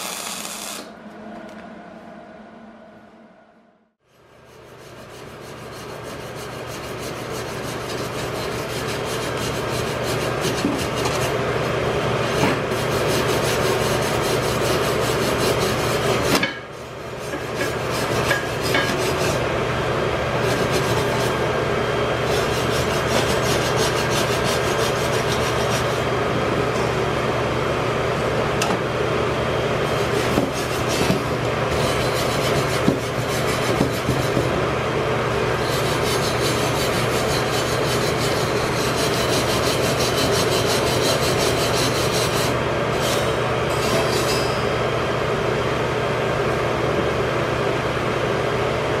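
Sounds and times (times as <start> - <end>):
welding arc crackle: 0.0 - 0.9.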